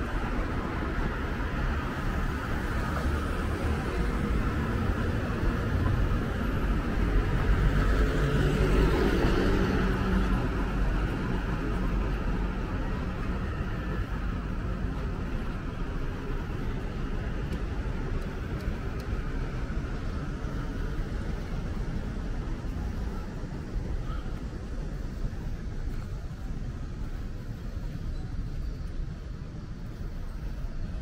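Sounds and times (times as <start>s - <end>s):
road noise from passing vehicles: 0.0s - 31.0s.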